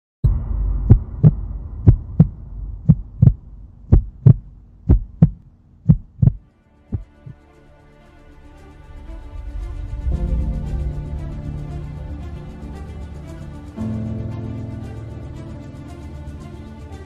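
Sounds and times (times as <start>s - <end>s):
low hum: 0.2s - 7.4s, 8.0s - 17.0s
heartbeat thumps: 0.3s - 7.4s
faint music: 5.2s - 17.0s.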